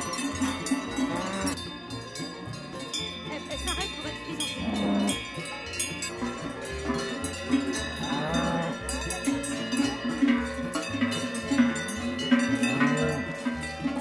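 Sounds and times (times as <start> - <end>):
cattle mooing: 0.0 - 1.6, 4.4 - 5.6, 6.2 - 14.0
cowbells clanging: 0.0 - 14.0.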